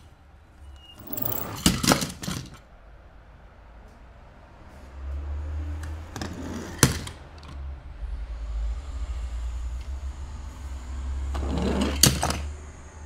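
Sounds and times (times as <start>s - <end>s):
toy cars rolling on plastic: 1.0s - 2.6s, 6.1s - 7.6s, 11.3s - 12.5s.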